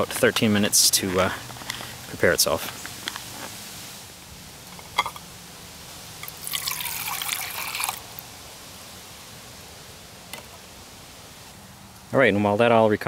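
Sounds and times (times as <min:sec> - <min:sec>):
water pouring into a pot: 0:06.3 - 0:08.1.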